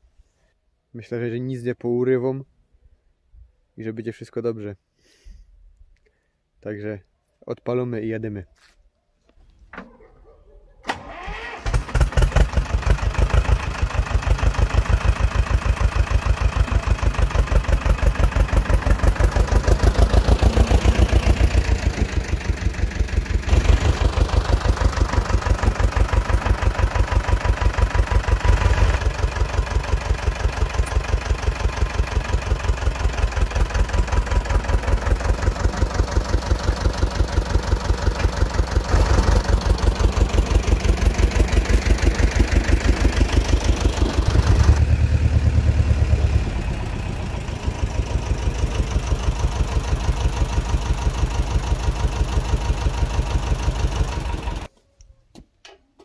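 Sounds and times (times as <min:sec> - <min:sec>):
tractor diesel engine chugging: 0:11.0 - 0:54.7.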